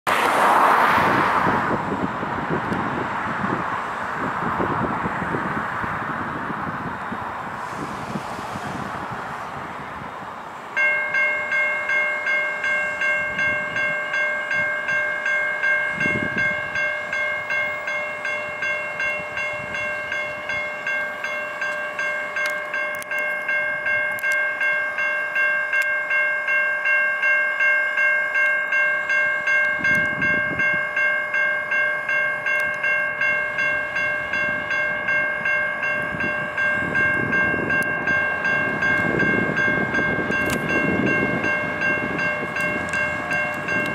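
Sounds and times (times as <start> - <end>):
electronic crossing bell ringing: 10.8 - 43.9.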